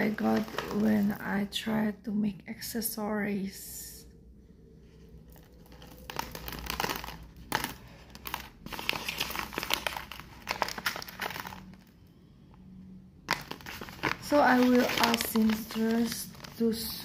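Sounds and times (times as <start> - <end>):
paper wrapper crinkling: 0.0 - 1.3, 5.2 - 11.9, 13.3 - 17.0.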